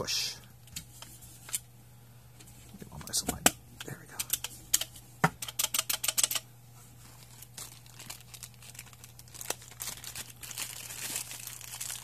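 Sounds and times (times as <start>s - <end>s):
plastic bag crinkling: 7.0s - 12.0s.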